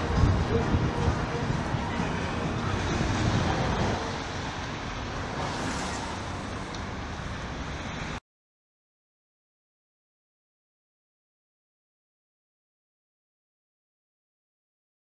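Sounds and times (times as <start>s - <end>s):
city street traffic: 0.0s - 8.2s.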